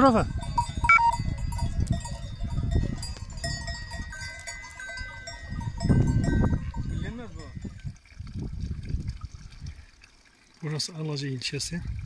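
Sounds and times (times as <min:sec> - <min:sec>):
cattle bells ringing: 0:00.0 - 0:07.9.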